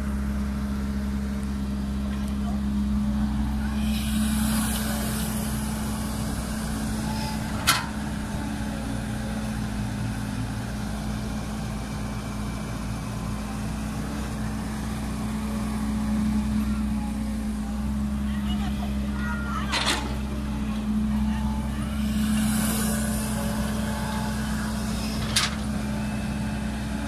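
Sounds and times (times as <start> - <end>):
excavator diesel engine running: 0.0 - 27.0.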